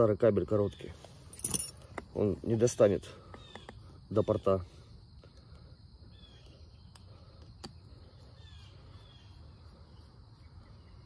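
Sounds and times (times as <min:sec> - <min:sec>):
bird chirps: 0:02.9 - 0:05.0, 0:05.6 - 0:11.0.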